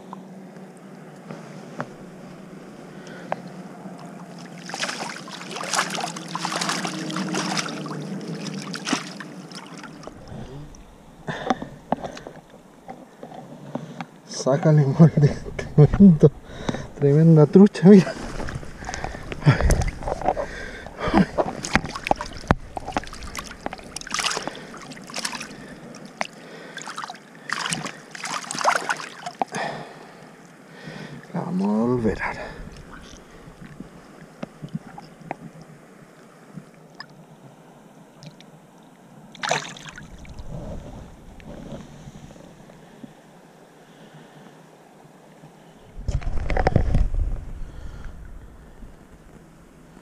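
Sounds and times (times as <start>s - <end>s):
fish splashing in water: 4.2s - 10.2s, 18.5s - 29.6s, 39.3s - 40.5s.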